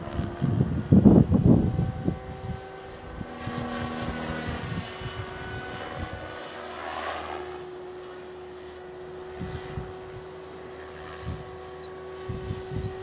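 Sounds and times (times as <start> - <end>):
wind buffeting microphone: 0.0 - 6.3, 11.2 - 13.0
rc helicopter motor whine: 0.0 - 13.0.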